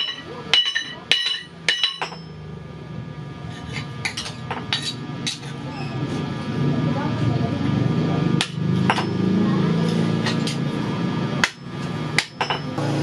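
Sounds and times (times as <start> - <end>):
hammer striking hot metal on anvil: 0.0 - 2.4, 8.4 - 9.3, 11.4 - 12.8.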